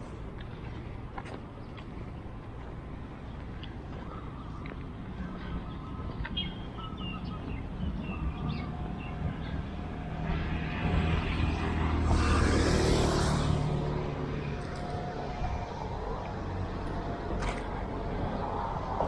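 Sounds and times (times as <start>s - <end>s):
low traffic hum: 0.0s - 19.0s
bird chirps: 4.0s - 9.6s
vehicle passing: 5.1s - 19.0s.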